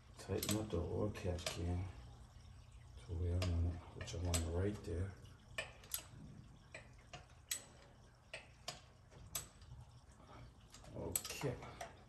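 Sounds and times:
hand tool clicks and metal knocks: 0:10.8 - 0:12.0.

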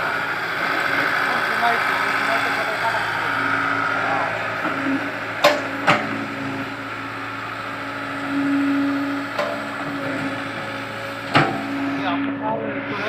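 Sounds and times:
excavator diesel engine running: 0:00.0 - 0:13.0
pitched hum: 0:00.0 - 0:13.0
sharp knocks: 0:05.4 - 0:06.2.

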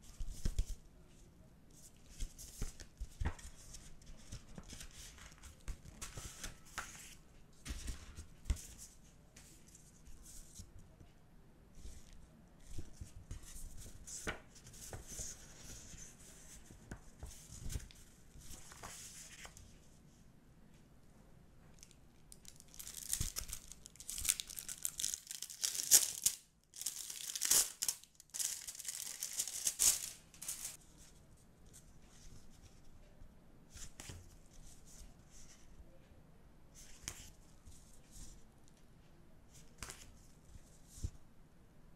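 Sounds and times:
paper rustling: 0:01.9 - 0:10.6, 0:11.8 - 0:19.7, 0:21.8 - 0:32.3
packaging tearing and crinkling: 0:22.5 - 0:30.8.

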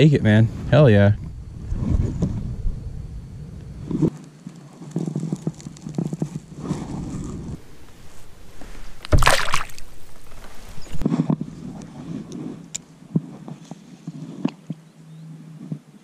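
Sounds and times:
handling knocks and rustles: 0:04.1 - 0:13.8
fish splashing into water: 0:08.8 - 0:11.0.

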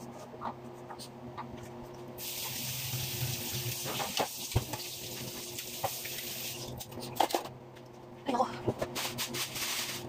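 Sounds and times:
kitchen tap running into sink: 0:02.2 - 0:06.8.

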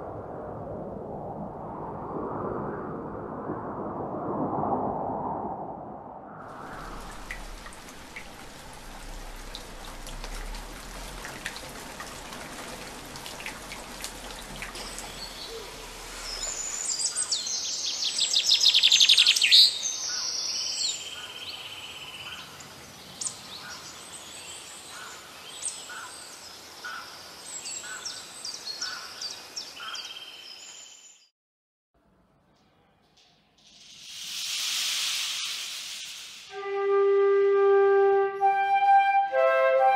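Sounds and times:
water drips: 0:06.4 - 0:17.3
light drizzle pattering: 0:06.6 - 0:16.5
songbirds chirping and trilling: 0:14.6 - 0:31.2.

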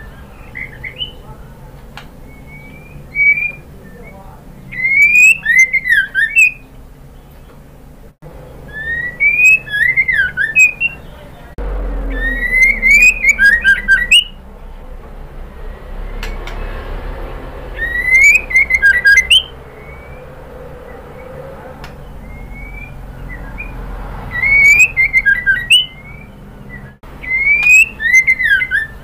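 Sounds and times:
bird whistling song: 0:00.0 - 0:01.4, 0:02.2 - 0:07.6, 0:08.4 - 0:14.4, 0:17.7 - 0:29.0
high clicking bird notes: 0:12.0 - 0:14.4, 0:16.1 - 0:16.8, 0:21.8 - 0:29.0.

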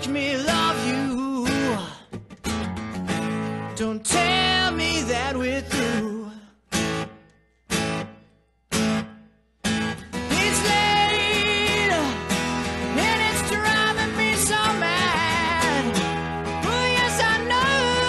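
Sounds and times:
man singing: 0:00.0 - 0:02.2, 0:03.6 - 0:06.7, 0:10.1 - 0:18.0
acoustic guitar strumming: 0:00.0 - 0:18.0.

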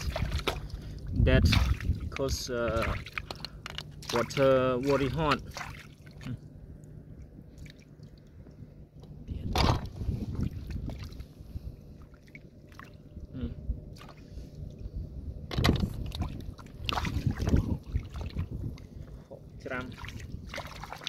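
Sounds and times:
hands sloshing in muddy water: 0:00.0 - 0:06.5, 0:09.8 - 0:11.4, 0:13.9 - 0:14.4, 0:16.0 - 0:18.8, 0:19.7 - 0:21.0
loud water splashes: 0:01.4 - 0:02.0, 0:04.0 - 0:06.3, 0:16.1 - 0:18.5, 0:19.7 - 0:21.0.

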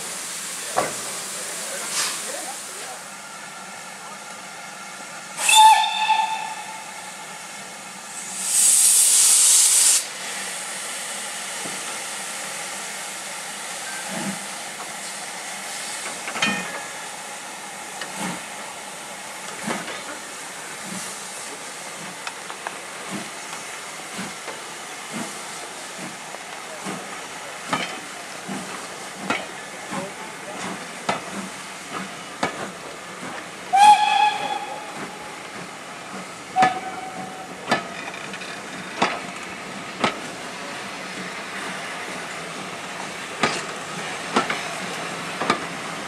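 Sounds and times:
steam hissing: 0:00.0 - 0:03.0, 0:05.4 - 0:38.0
steam locomotive whistle: 0:05.4 - 0:07.2, 0:33.7 - 0:35.3, 0:36.6 - 0:37.6.

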